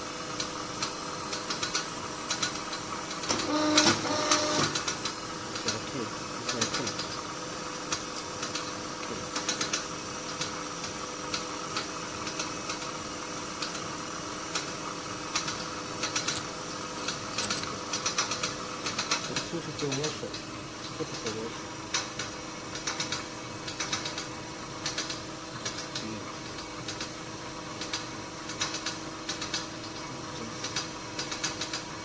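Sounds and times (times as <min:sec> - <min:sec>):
electrical machinery hum: 0:00.0 - 0:32.0
metal fittings clicking and tapping: 0:15.4 - 0:18.3.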